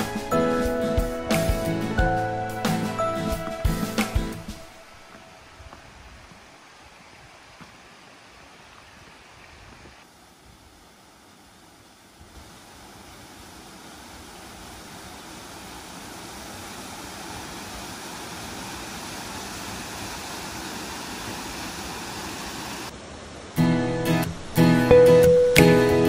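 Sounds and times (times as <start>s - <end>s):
waterfall pouring into pool: 11.8s - 22.9s.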